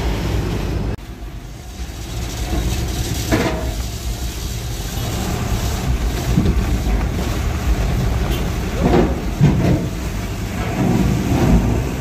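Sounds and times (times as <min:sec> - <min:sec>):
diesel engine rumble: 0:00.0 - 0:12.0.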